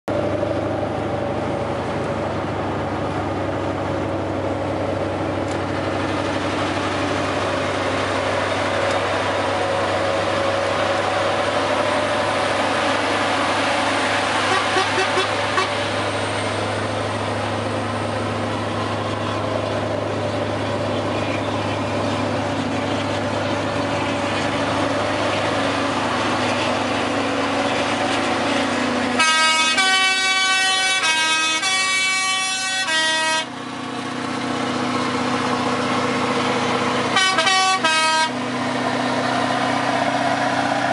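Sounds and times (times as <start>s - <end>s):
truck engine drone and road noise: 0.0s - 40.9s
truck air horn playing notes: 14.4s - 15.9s, 29.1s - 33.6s, 37.1s - 38.6s
brief horn toots: 14.5s - 15.8s, 29.2s - 33.5s, 37.1s - 38.4s.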